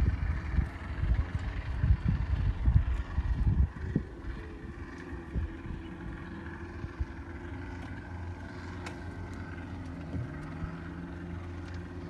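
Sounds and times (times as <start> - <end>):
boat motor humming: 0.0 - 12.0.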